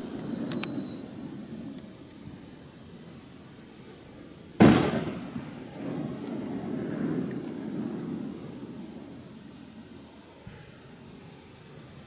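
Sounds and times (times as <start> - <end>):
firework bang: 0.0 - 1.7, 4.6 - 9.6
low background noise: 0.0 - 12.0.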